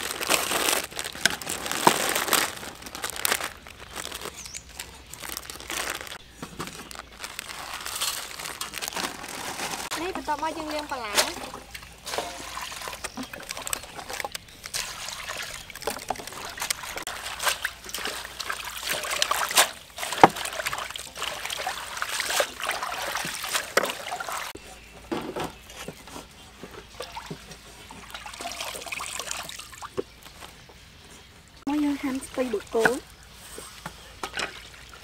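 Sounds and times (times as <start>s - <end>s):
hands splashing water: 10.0s - 24.5s
water poured into metal basin: 10.7s - 24.5s, 28.0s - 29.8s.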